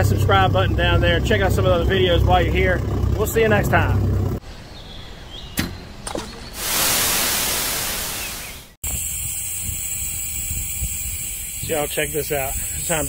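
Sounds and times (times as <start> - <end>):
low outdoor background rumble: 0.0 - 6.1
loud static-like hiss: 6.6 - 13.0.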